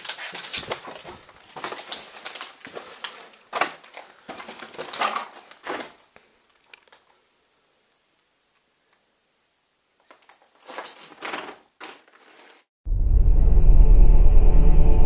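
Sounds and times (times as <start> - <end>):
footsteps crunching on rubble: 0.0 - 7.1.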